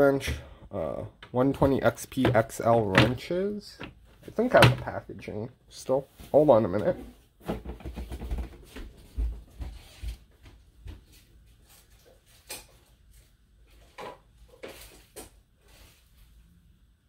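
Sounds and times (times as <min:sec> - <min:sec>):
objects thumping and knocking: 0:01.6 - 0:05.0, 0:06.9 - 0:10.2.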